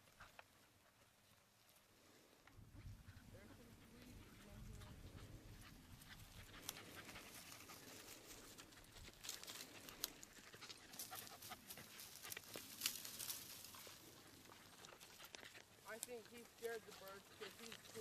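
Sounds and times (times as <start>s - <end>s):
panting breath: 2.6s - 12.6s, 13.8s - 15.9s
steps through dry brush: 3.6s - 18.0s.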